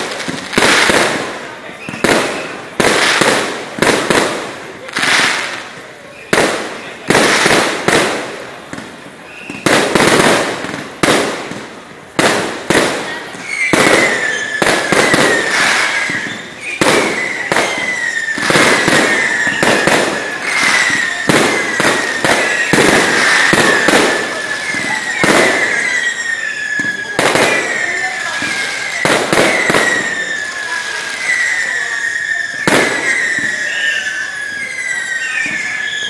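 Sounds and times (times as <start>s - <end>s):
whistling fireworks: 0.0s - 36.0s.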